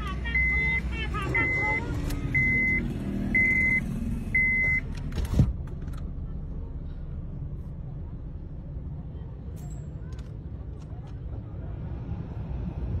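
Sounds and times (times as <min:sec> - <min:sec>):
low vehicle rumble: 0:00.0 - 0:13.0
electronic alarm beeping: 0:00.3 - 0:03.8, 0:04.4 - 0:04.8.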